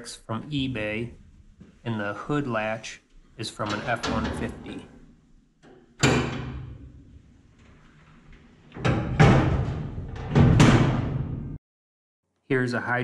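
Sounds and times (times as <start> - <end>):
hood latching: 3.5 - 11.4
sheet-metal hood slamming shut: 6.0 - 11.6.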